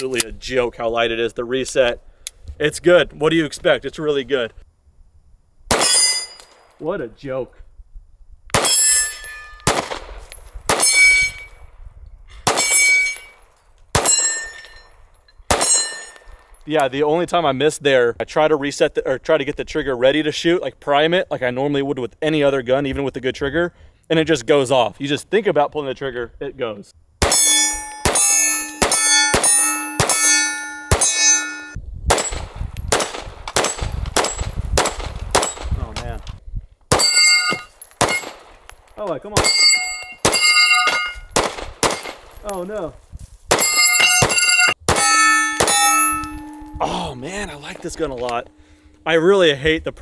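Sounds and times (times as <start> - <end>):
pistol shots: 5.7 - 6.2, 8.5 - 9.0, 9.6 - 11.5, 12.4 - 13.3, 13.9 - 14.4, 15.5 - 16.2, 27.2 - 31.2, 32.1 - 35.8, 36.9 - 38.7, 40.2 - 42.4, 43.5 - 46.7
steel targets ringing: 5.8 - 6.6, 8.6 - 9.7, 10.7 - 11.6, 12.5 - 13.4, 14.0 - 16.6, 27.2 - 32.4, 36.9 - 38.5, 39.4 - 42.4, 43.5 - 49.4.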